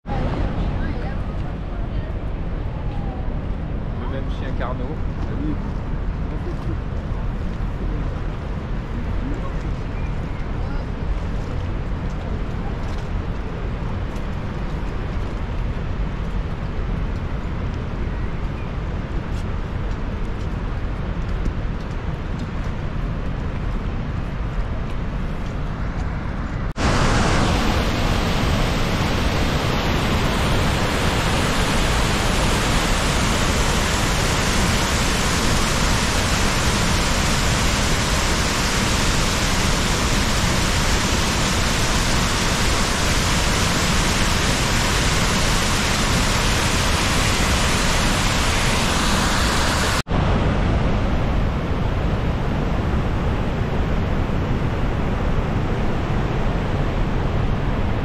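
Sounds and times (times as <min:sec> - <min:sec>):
waterfall rushing: 0:26.8 - 0:50.0.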